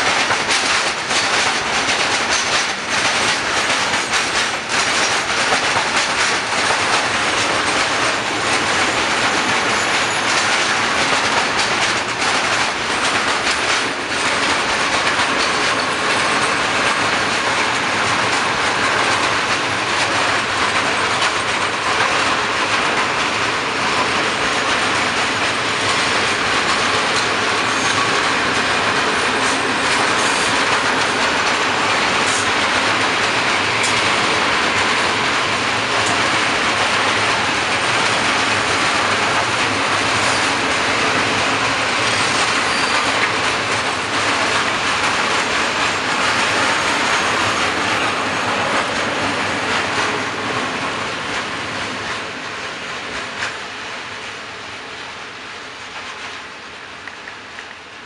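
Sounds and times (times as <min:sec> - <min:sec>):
freight train rumbling past: 0:00.0 - 0:58.0
high wheel squeal: 0:08.9 - 0:10.5, 0:27.6 - 0:28.4, 0:42.1 - 0:43.2.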